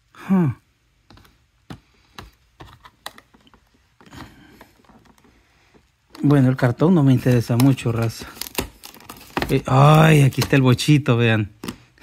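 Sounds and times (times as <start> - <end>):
packaging clicks and taps: 1.0 - 6.6, 7.2 - 10.8
packaging rustle: 2.6 - 12.0.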